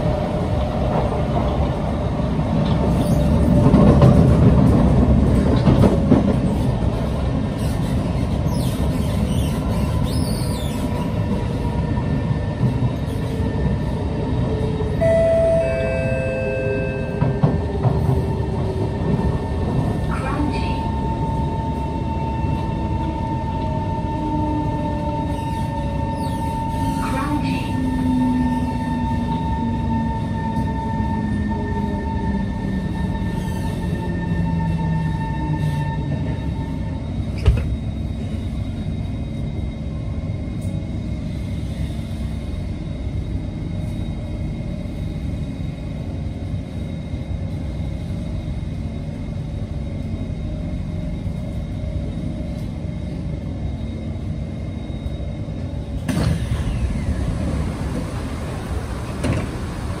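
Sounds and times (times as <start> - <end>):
rumbling hum of standing train: 0.0 - 60.0
train clunk: 15.0 - 18.4, 37.3 - 38.0, 56.0 - 60.0.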